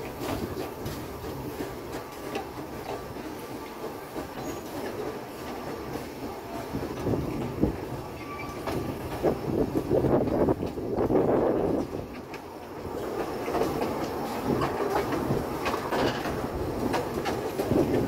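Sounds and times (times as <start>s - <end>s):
train carriage rumbling on track: 0.0s - 18.0s
wheels clicking and clattering: 0.0s - 18.0s.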